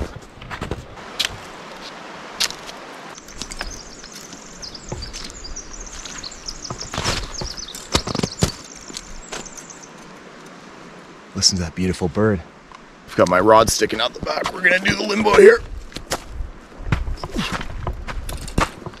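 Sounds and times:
footsteps: 0.0s - 10.1s
songbird chirping: 1.0s - 15.7s.

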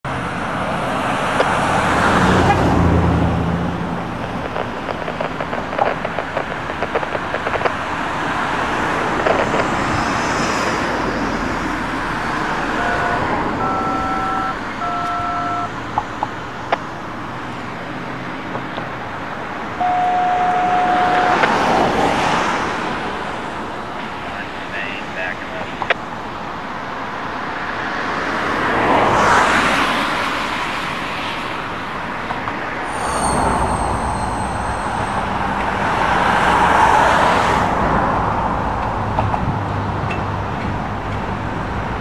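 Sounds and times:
road traffic passing: 0.0s - 42.0s
faint steady tones: 12.7s - 15.8s, 19.8s - 21.5s, 32.9s - 35.9s.

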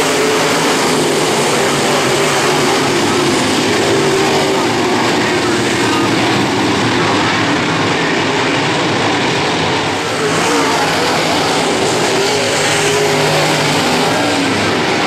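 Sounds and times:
race car engines running hard: 0.0s - 15.0s.

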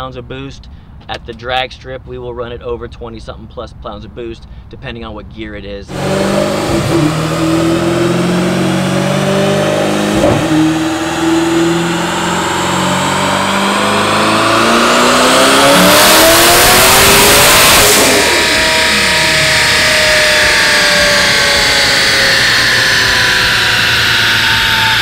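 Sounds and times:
car engine revving on dyno: 5.9s - 25.0s.

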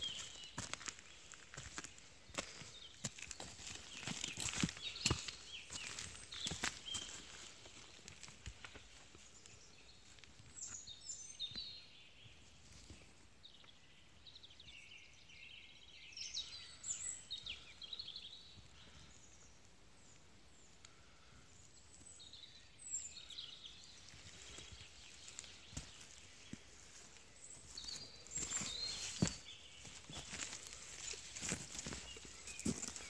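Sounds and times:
footsteps on forest floor: 0.0s - 10.8s, 23.8s - 33.0s
songbirds chirping and trilling: 0.0s - 33.0s.

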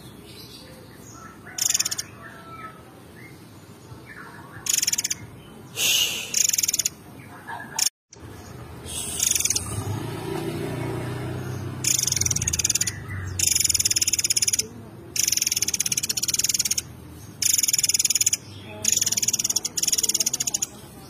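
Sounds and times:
songbird rattling trills: 1.5s - 2.2s, 4.6s - 5.3s, 6.3s - 7.0s, 9.0s - 10.0s, 11.6s - 20.8s.

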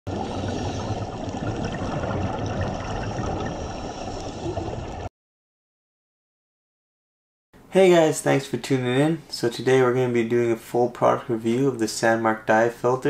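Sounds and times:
muffled underwater rumbling: 0.1s - 5.1s.

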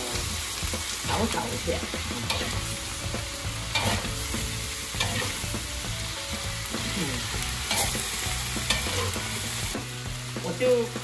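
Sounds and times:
food sizzling in a wok: 0.0s - 11.0s
metal spatula scraping a wok: 2.0s - 5.6s, 6.4s - 9.7s.

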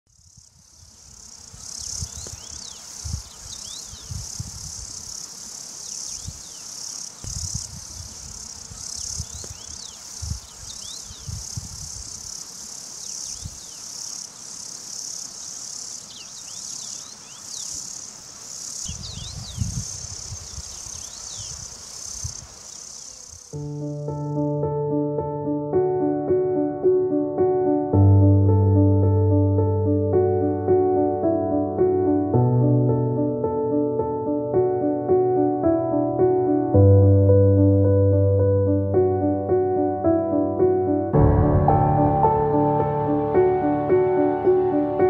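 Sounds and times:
grasshoppers chirring: 0.1s - 24.0s.

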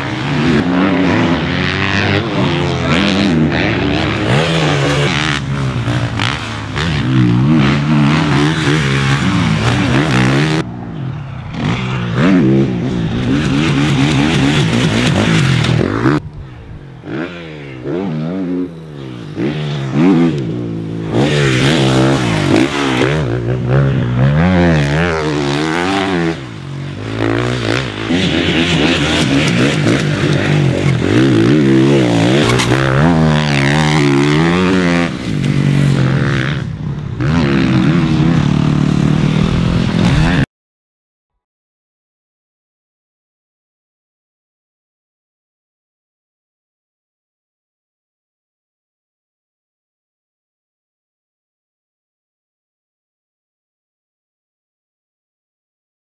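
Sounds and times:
motorbike engine revving: 0.0s - 10.6s, 11.5s - 16.2s, 17.1s - 40.4s.

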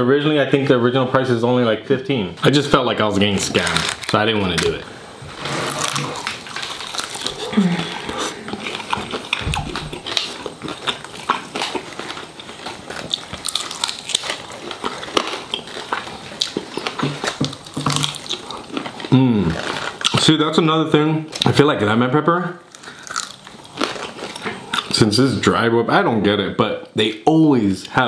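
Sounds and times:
chewing crispy food: 3.2s - 4.8s, 5.6s - 20.4s, 22.7s - 25.1s.

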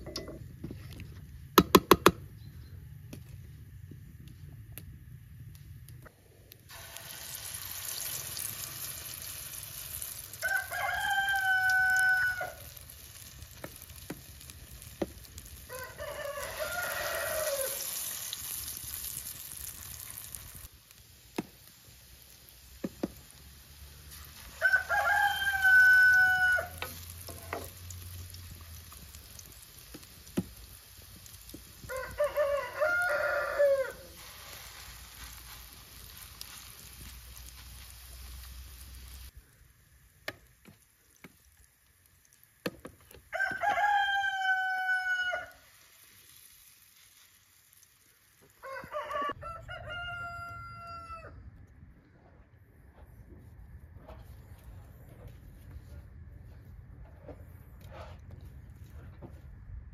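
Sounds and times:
batter sizzling in oil: 6.5s - 49.3s
rooster crowing: 10.4s - 12.8s, 15.7s - 18.0s, 24.5s - 27.6s, 31.8s - 34.2s, 43.3s - 45.7s, 48.6s - 51.4s.

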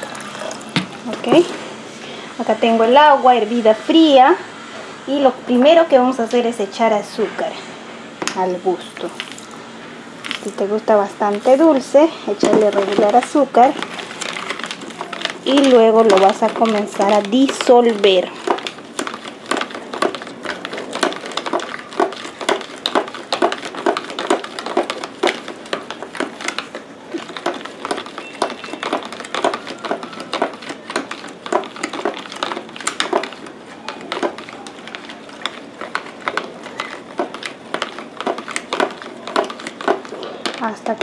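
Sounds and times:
spoon scraping plastic pitcher: 11.3s - 40.6s.

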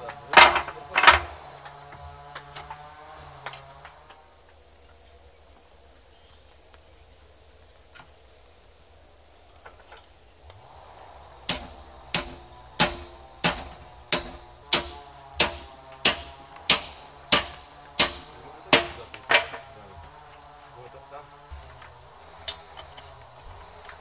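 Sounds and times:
hammer striking metal on anvil: 11.5s - 19.2s.

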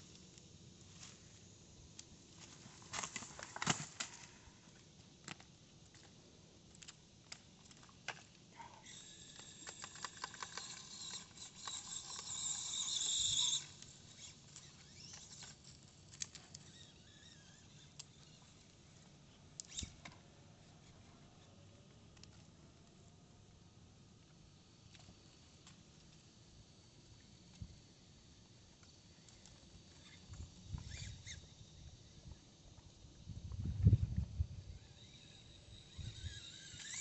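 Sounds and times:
toy tyres clicking and scraping on rock: 0.0s - 22.6s, 24.3s - 37.0s
high electric motor whine: 8.6s - 19.1s, 27.2s - 37.0s.

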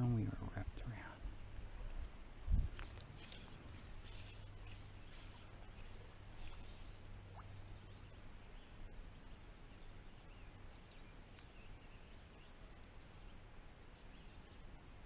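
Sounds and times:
steady high-pitched hiss: 0.0s - 15.0s
bird chirps: 4.0s - 12.6s.

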